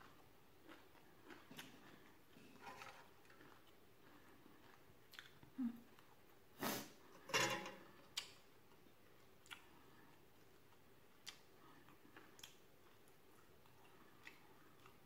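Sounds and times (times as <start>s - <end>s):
person chewing: 0.0s - 6.8s, 8.0s - 15.0s
soft mouth clicks: 11.2s - 11.5s.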